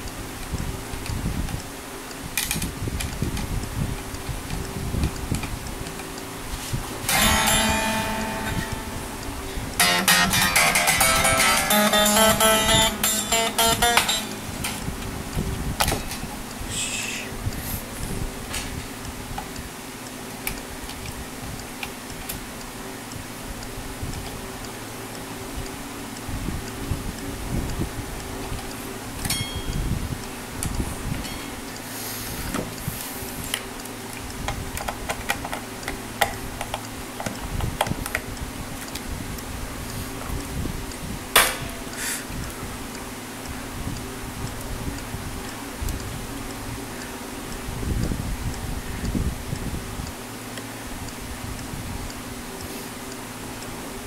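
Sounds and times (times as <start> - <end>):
steady low hum: 0.0 - 54.0
metallic clicks and taps: 2.3 - 6.2, 7.0 - 15.1, 33.4 - 39.0
fingers clicking on guitar bridge: 7.0 - 15.1.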